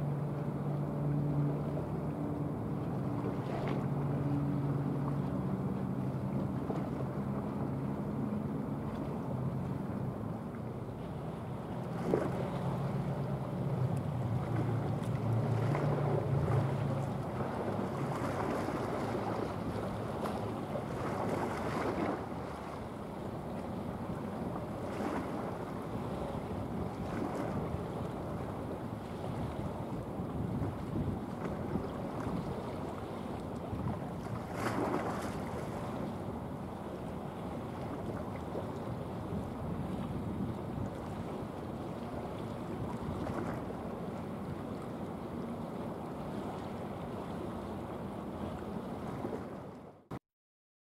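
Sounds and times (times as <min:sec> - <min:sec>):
ship engine drone: 0:00.0 - 0:34.5
water wash: 0:00.0 - 0:45.5
sea noise: 0:00.0 - 0:50.2
wind buffeting microphone: 0:23.7 - 0:36.3.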